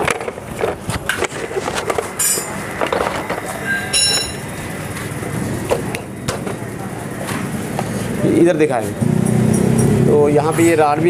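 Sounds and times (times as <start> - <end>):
metal tools clinking: 2.2 - 2.6, 3.6 - 4.4
high metallic ring: 2.2 - 2.8, 3.5 - 4.8.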